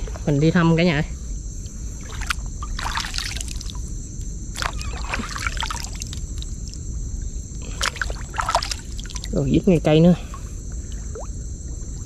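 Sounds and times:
water splashing and trickling: 2.0 - 3.9, 4.5 - 6.9, 7.6 - 9.5.

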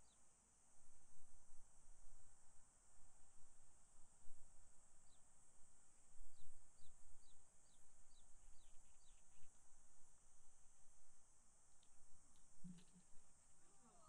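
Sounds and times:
bird chirping: 6.4 - 9.5.

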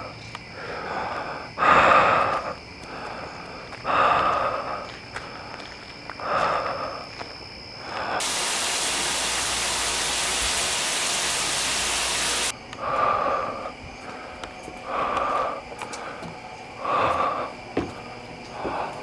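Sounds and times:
heavy raspy breathing: 0.0 - 7.2, 7.8 - 8.3, 12.7 - 19.0
shower running: 8.2 - 12.5.

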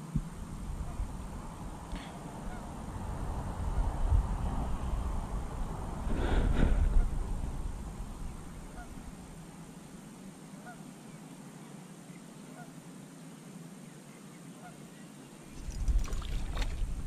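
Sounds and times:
quiet outdoor hum: 0.0 - 17.0
faint bird calls: 0.7 - 2.9, 8.2 - 12.9, 13.8 - 16.0.

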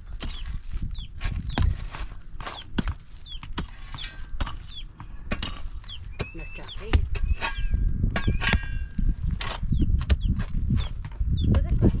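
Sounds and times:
tools knocking and scraping rock: 0.0 - 12.0.

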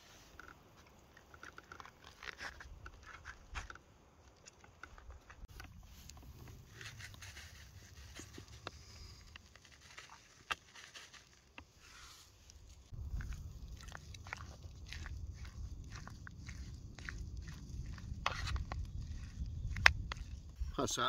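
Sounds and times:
low rumble: 12.9 - 20.7.

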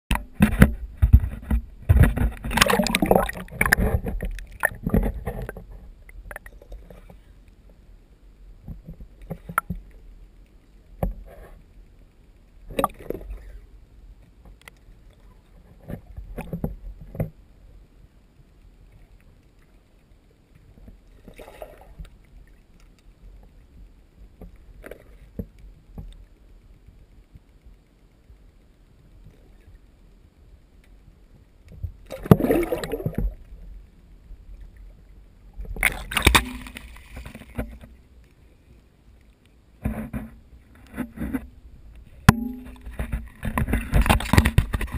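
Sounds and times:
muffled underwater knocks and bumps: 0.1 - 7.3, 8.6 - 9.9, 15.6 - 17.4, 35.6 - 38.0, 39.8 - 44.9.

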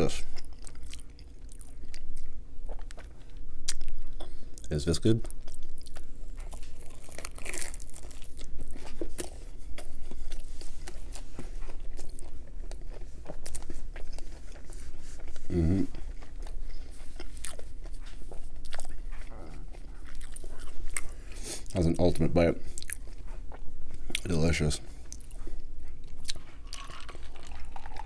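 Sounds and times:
crunchy chewing: 0.0 - 28.0
person humming: 15.5 - 16.0.

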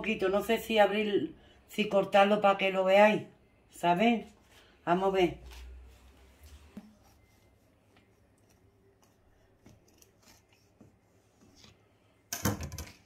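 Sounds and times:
knife cutting cake crust: 8.0 - 11.8.

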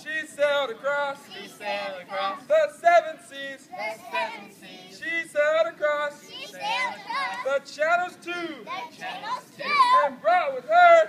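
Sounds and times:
adult voices: 0.0 - 11.0
children singing together: 1.2 - 2.5, 3.7 - 5.0, 6.3 - 7.5, 8.7 - 10.2.

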